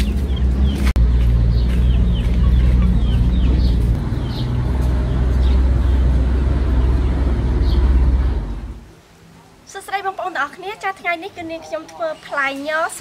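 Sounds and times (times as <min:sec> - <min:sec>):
chickens chirping: 0:00.0 - 0:08.8
loud low rumble: 0:00.0 - 0:09.0.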